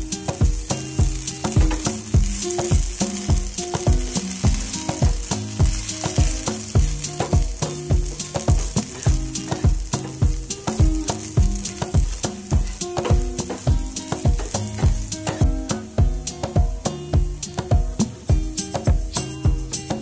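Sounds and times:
background music with beat: 0:00.0 - 0:20.0
potatoes sizzling in oil: 0:00.0 - 0:20.0
wooden spatula stirring: 0:00.3 - 0:15.4.

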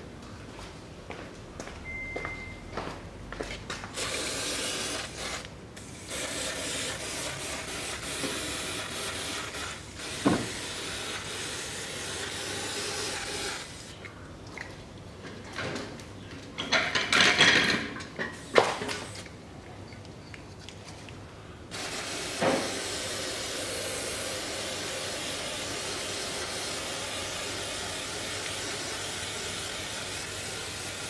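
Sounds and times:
aerosol spray hissing: 0:21.8 - 0:31.0.

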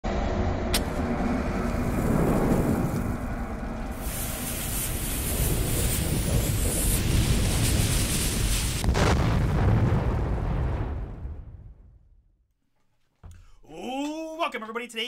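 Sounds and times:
low rumble: 0:00.0 - 0:12.4
burning fuse hissing crackle: 0:00.8 - 0:09.5.

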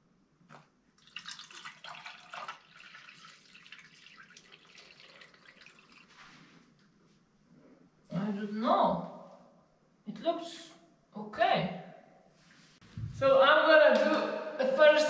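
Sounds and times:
water trickling into drain: 0:01.0 - 0:06.4.

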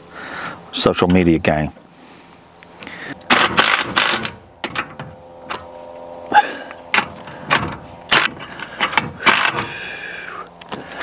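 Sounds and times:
metal parts clicking and knocking: 0:06.9 - 0:09.6.

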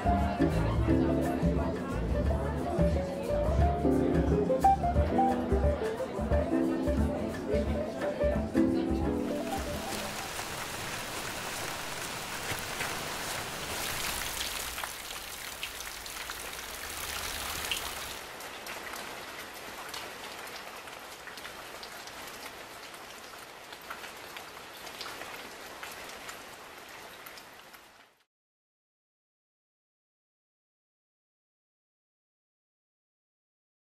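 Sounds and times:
rain falling: 0:09.2 - 0:28.3.

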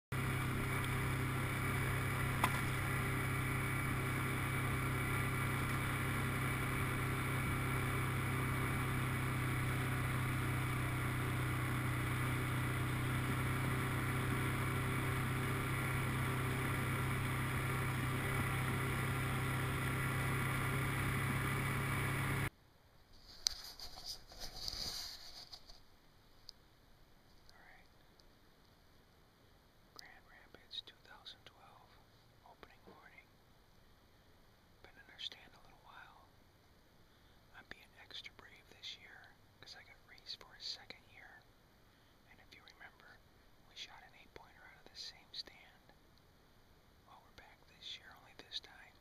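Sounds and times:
vehicle engine driving on dirt trail: 0:00.1 - 0:22.5.

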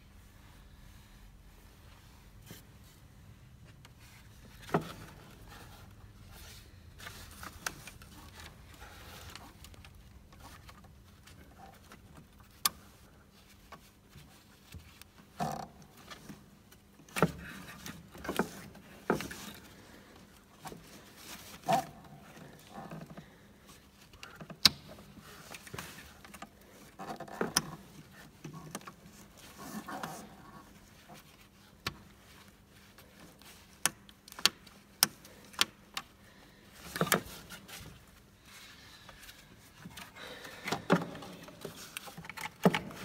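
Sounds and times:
clicks and knocks of parts: 0:39.2 - 0:43.0.

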